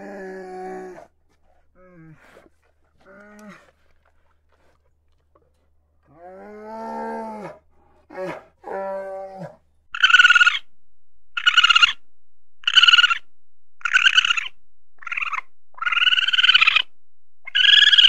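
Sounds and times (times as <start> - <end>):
bear low calls: 0.0 - 4.2
higher-pitched animal calls: 10.0 - 10.7, 11.4 - 12.0, 12.6 - 13.2, 13.8 - 18.0.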